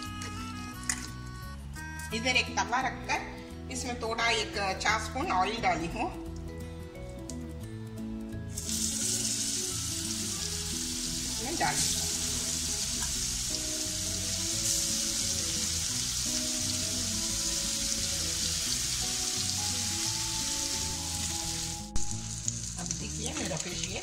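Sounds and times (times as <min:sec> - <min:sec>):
fish sizzling in oil: 0:08.5 - 0:24.0.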